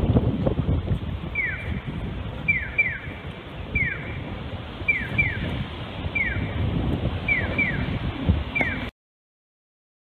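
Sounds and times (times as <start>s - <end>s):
low rumbling noise: 0.0s - 8.9s
crossing signal electronic chirps: 1.3s - 1.8s, 2.5s - 3.1s, 3.8s - 4.2s, 4.9s - 5.5s, 6.1s - 6.6s, 7.2s - 8.0s, 8.6s - 8.9s.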